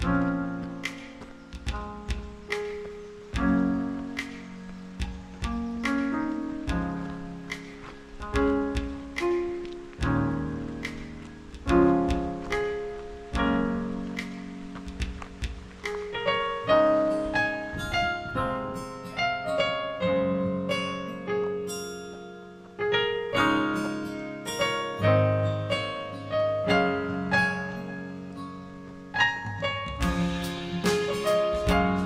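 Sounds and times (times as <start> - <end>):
piano music: 0.0 - 32.0.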